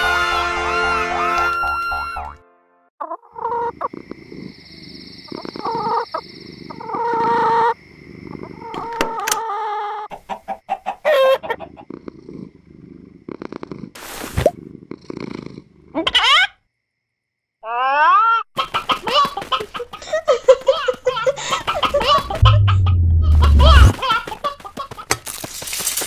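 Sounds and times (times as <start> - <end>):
hen clucking: 3.0 - 4.0, 5.3 - 12.0, 18.6 - 24.6
rising squawks: 21.4 - 23.9
loud rushing noise: 22.1 - 23.9.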